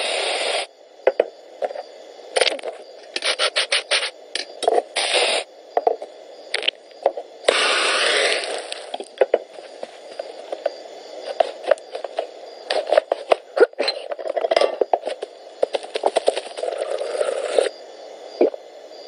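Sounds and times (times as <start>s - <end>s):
blowtorch hissing: 0.0s - 0.7s, 4.9s - 5.5s, 7.4s - 9.2s, 16.6s - 17.7s
chocolate grating scrapes: 3.2s - 4.1s
whipped cream can spraying: 3.2s - 4.1s, 5.0s - 5.4s.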